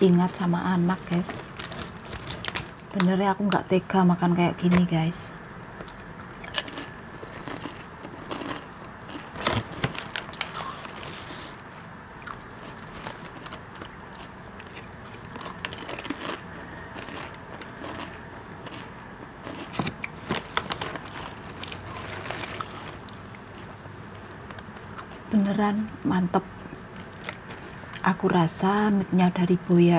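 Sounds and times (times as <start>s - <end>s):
potato chips crunched and chewed: 0.8s - 3.1s, 5.8s - 11.6s, 12.2s - 23.8s, 27.0s - 28.0s.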